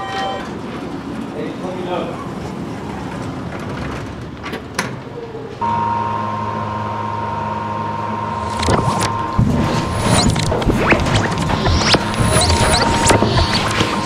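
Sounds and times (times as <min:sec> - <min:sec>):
electric hum with high whine: 0:05.6 - 0:14.0.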